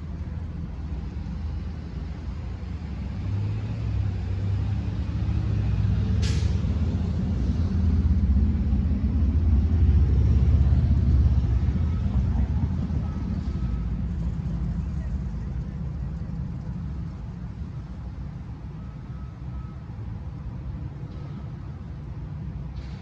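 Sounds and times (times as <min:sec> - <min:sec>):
heavy vehicle engine rumbling: 0:00.0 - 0:23.0
air brake hiss: 0:06.2 - 0:06.6, 0:22.8 - 0:23.0.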